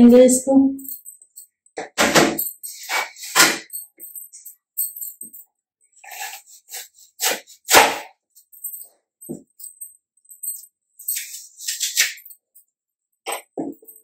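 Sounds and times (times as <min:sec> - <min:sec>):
knife cutting apple on plastic board: 0:06.1 - 0:08.2.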